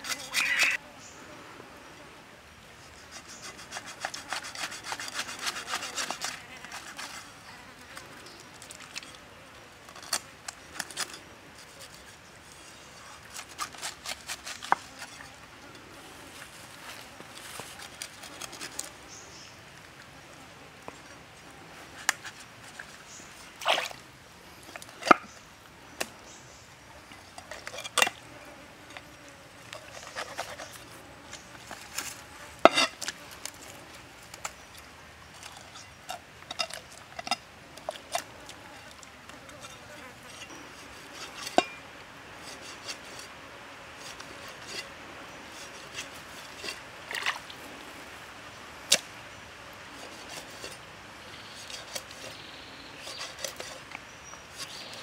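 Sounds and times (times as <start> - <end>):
cleaver scraping fish scales: 0.0 - 0.8, 2.8 - 9.2, 9.8 - 15.4, 17.0 - 19.2, 21.9 - 24.0, 27.1 - 28.3, 28.9 - 34.6, 35.4 - 41.8, 42.4 - 47.7, 49.8 - 55.0.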